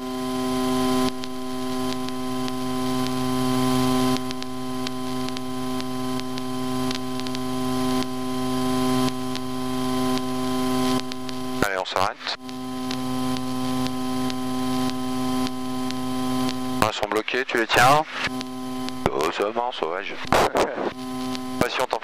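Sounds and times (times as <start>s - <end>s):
propeller aircraft engine droning: 0.0s - 11.6s, 12.4s - 16.8s.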